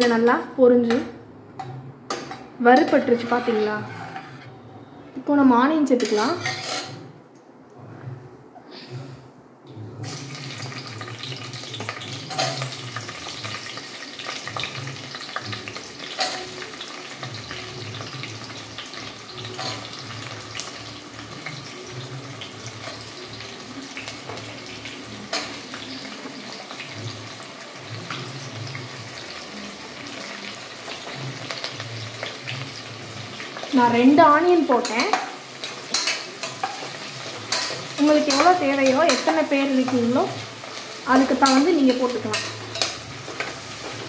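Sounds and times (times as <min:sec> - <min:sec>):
onions sizzling in oil: 0:10.0 - 0:44.0.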